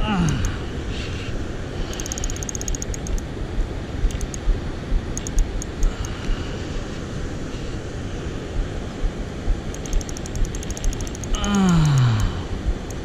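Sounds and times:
fishing reel clicking: 0:01.9 - 0:03.2, 0:09.8 - 0:11.4.

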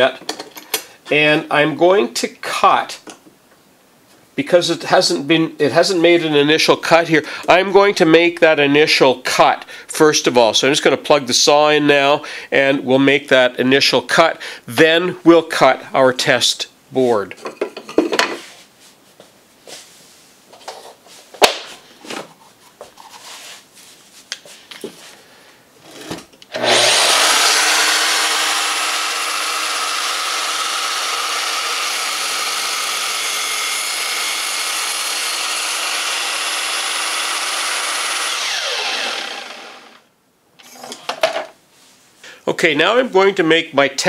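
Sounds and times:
mitre saw cutting wood: 0:26.5 - 0:40.0
saw spinning down whine: 0:26.5 - 0:40.0.

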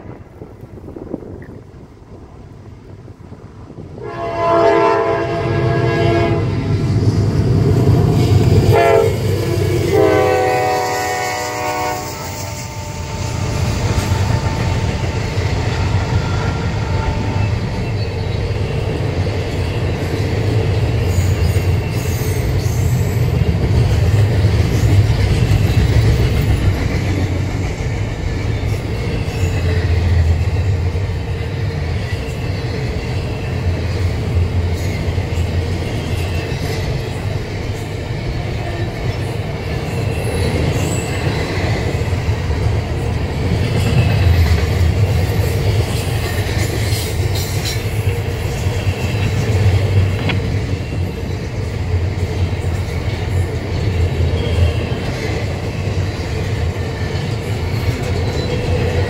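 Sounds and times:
train rumbling past: 0:00.0 - 0:59.0
locomotive air horn blasts: 0:04.0 - 0:06.6, 0:08.7 - 0:15.3.

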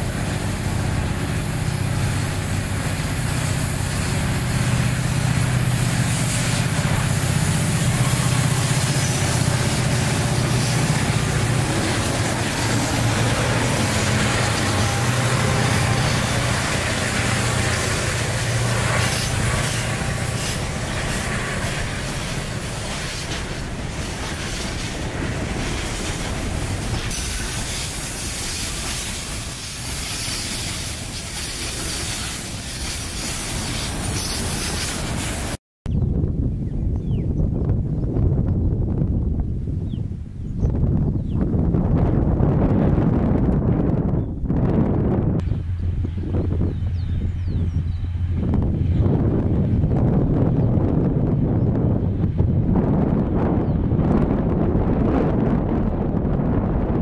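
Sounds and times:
diesel locomotive engines droning: 0:00.0 - 0:35.6, 0:40.6 - 0:57.0
freight wagons rolling on rails: 0:00.0 - 0:35.6
thin high squeal: 0:00.2 - 0:35.6.

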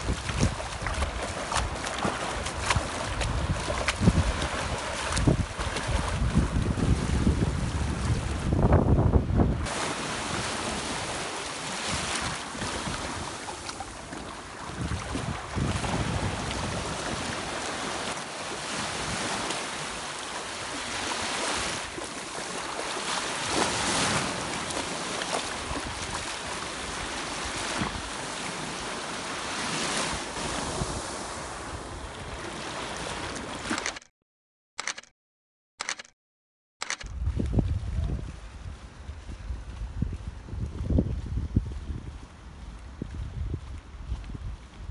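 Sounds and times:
small waves breaking in surf: 0:00.0 - 0:08.6, 0:09.6 - 0:33.9
wind buffeting microphone: 0:00.0 - 0:10.8, 0:14.7 - 0:17.6, 0:37.0 - 0:44.9.

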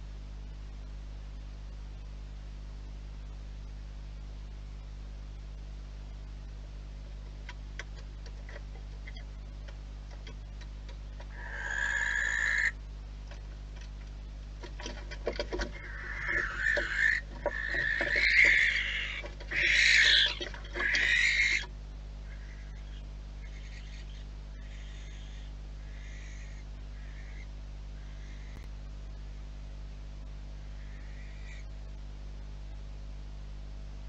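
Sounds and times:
sharp clicks and knocks: 0:07.2 - 0:11.3, 0:13.2 - 0:21.2
barn owls screeching: 0:11.2 - 0:12.8, 0:15.6 - 0:28.6, 0:30.6 - 0:31.7.

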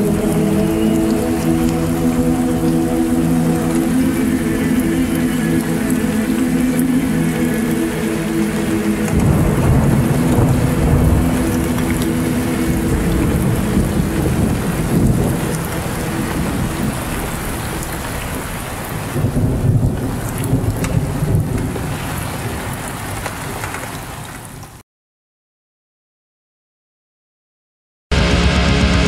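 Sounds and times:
heavy rain: 0:00.0 - 0:24.8, 0:28.1 - 0:29.0
rolling thunder: 0:08.6 - 0:22.9.

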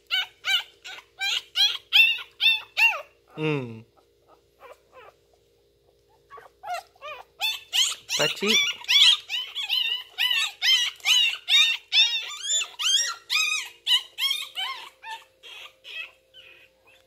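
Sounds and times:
dog whimpering: 0:00.0 - 0:05.2, 0:06.1 - 0:17.0.

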